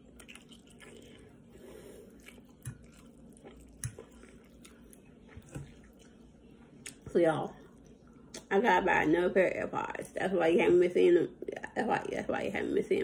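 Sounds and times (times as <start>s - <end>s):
faint chewing: 0.0s - 8.5s.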